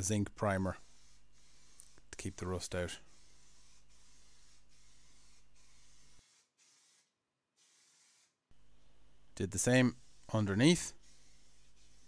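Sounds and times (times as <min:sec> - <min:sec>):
aerosol can spraying: 0:00.8 - 0:08.4, 0:10.0 - 0:12.0.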